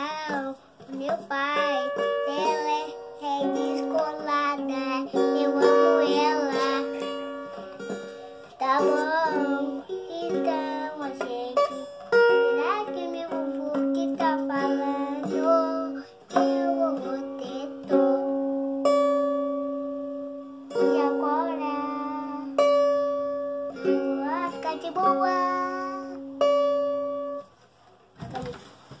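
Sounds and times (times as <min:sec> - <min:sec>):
child singing: 0:00.0 - 0:18.6, 0:20.7 - 0:22.6, 0:23.8 - 0:26.3
acoustic guitar strumming: 0:00.0 - 0:27.6.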